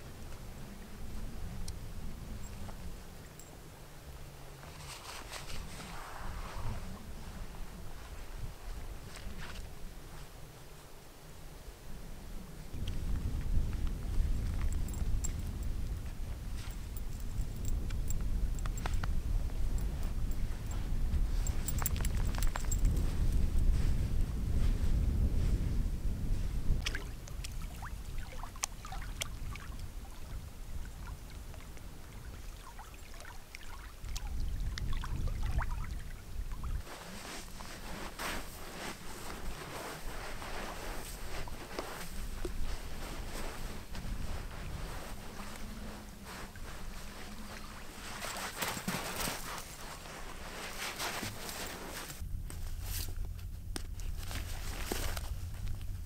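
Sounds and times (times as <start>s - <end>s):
wind rumble on microphone: 0.0s - 10.6s, 11.4s - 56.0s
small waves lapping: 26.8s - 42.1s
footsteps scuffing on sand: 36.8s - 53.4s.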